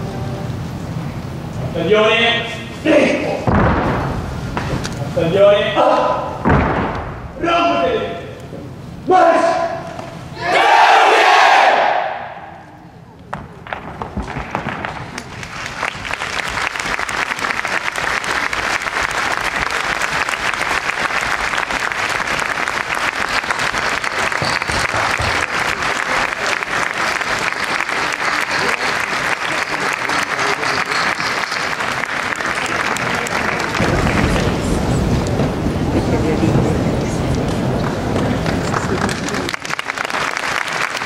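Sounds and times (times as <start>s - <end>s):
audience applauding: 14.1s - 41.0s.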